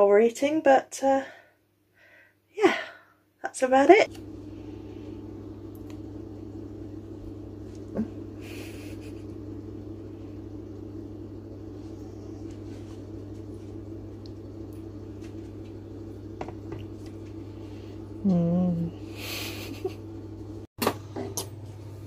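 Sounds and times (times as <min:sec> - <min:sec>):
low hum: 0:04.0 - 0:22.0
click: 0:05.7 - 0:06.0.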